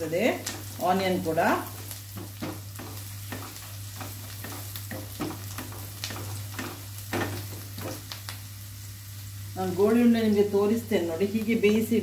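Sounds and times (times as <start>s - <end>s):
onions sizzling in oil: 0.0s - 12.0s
spatula scraping and stirring: 1.6s - 8.2s.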